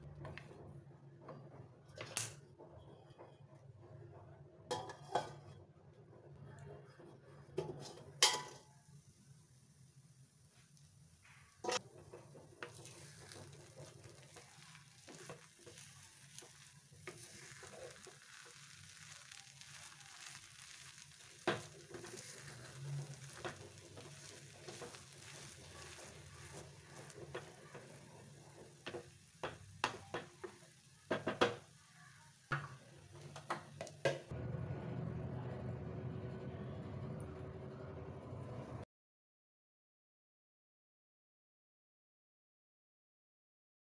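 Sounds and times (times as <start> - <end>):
light sizzle: 0.0 - 38.8
spatula scraping metal pan: 2.6 - 3.8, 20.7 - 30.6
spatula knocking on pan: 28.8 - 31.7.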